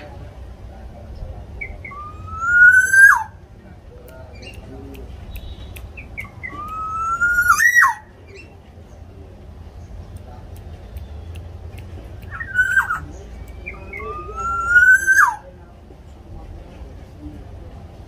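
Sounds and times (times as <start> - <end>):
bird whistling call: 1.6 - 3.4, 5.4 - 8.5, 12.3 - 15.4.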